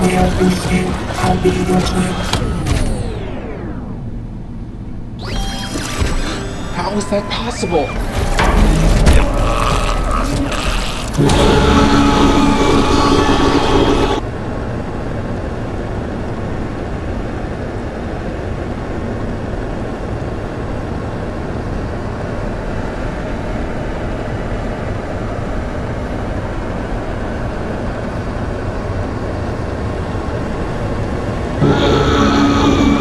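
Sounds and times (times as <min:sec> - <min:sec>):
low rumbling drone: 0:07.2 - 0:14.2, 0:31.6 - 0:33.0.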